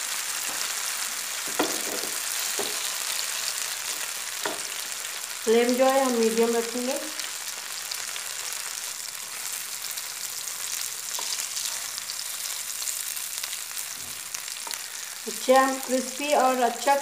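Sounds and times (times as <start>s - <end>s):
food sizzling in a pan: 0.0s - 17.0s
wooden spatula knocking on pan: 1.5s - 2.9s, 4.4s - 4.8s.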